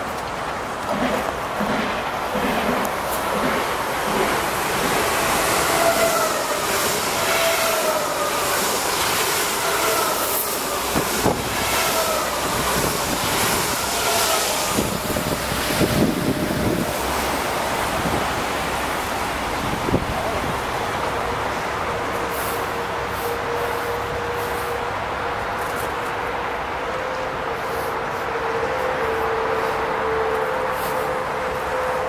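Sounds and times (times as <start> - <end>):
train wheels rushing: 0.0 - 32.0
sharp rail clicks: 0.1 - 5.0.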